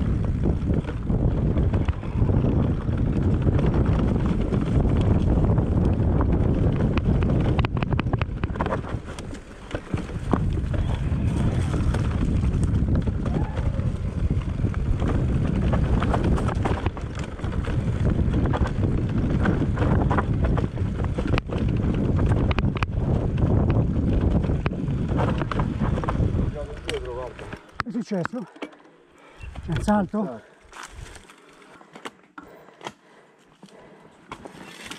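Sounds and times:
wind buffeting microphone: 0.0s - 27.6s
motorcycle engine running: 0.0s - 27.8s.

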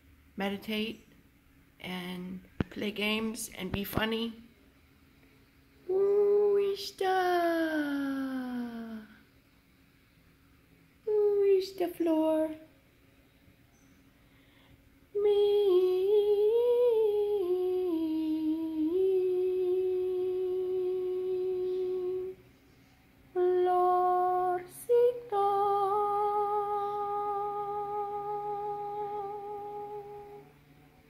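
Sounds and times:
person humming: 5.9s - 9.2s, 11.1s - 12.6s, 15.2s - 22.4s, 23.4s - 30.5s.

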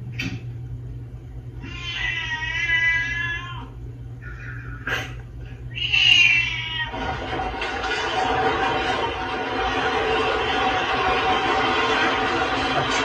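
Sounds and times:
steady low hum: 0.0s - 13.0s
cat meowing: 1.6s - 3.7s, 5.7s - 7.0s.

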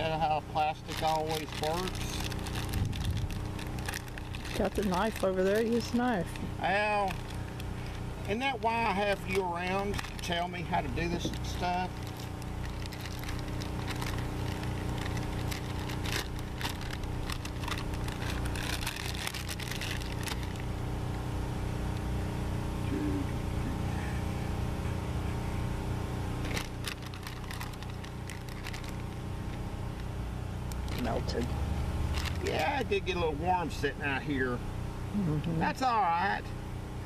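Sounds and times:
plastic bag crinkling: 0.0s - 20.8s, 26.4s - 29.6s, 32.1s - 32.7s
low mechanical hum: 0.0s - 37.0s.

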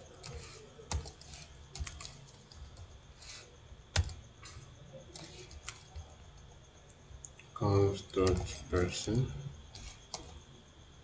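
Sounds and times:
computer keyboard typing: 0.0s - 2.9s, 3.9s - 9.0s, 9.7s - 10.4s.

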